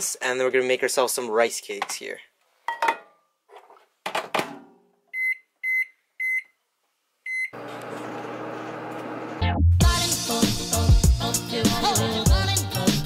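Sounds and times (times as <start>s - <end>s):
microwave keypad beeping: 5.2s - 6.6s, 7.3s - 7.6s
microwave humming: 7.3s - 9.5s
music: 9.4s - 13.0s.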